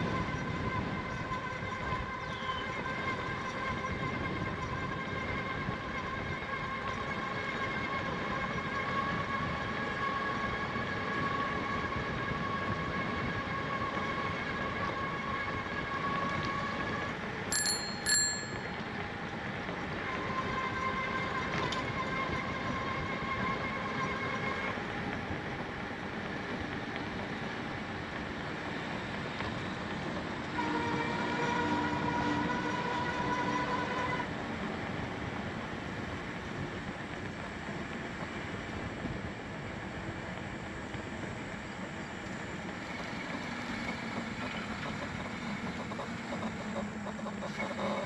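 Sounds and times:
bicycle bell ringing: 17.5 - 18.8
distant train horn: 30.4 - 34.4.

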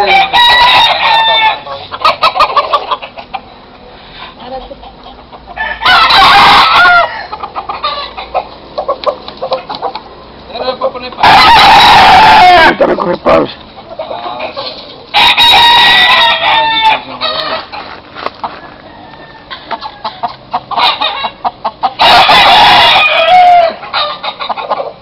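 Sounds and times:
rooster crowing: 0.0 - 2.4, 5.6 - 8.5, 11.2 - 12.8, 15.1 - 17.8, 18.4 - 24.6
chicken clucks and calls: 0.0 - 10.5, 11.2 - 25.0.

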